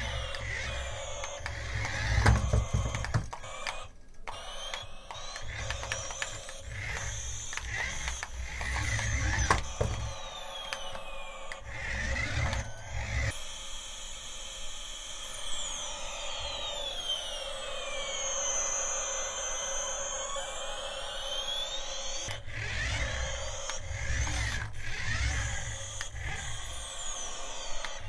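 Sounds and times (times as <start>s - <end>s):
clicks: 0.0s - 13.4s, 18.2s - 28.0s
high whines sliding in pitch: 0.0s - 28.0s
toy drive motor whirring: 0.0s - 28.0s.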